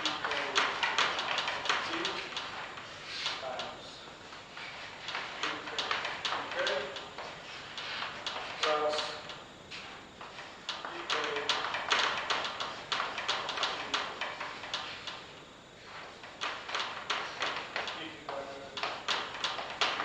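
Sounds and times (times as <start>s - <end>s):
chalk tapping on chalkboard: 0.0s - 15.2s, 15.8s - 20.0s
chalk scratching on chalkboard: 4.5s - 10.6s.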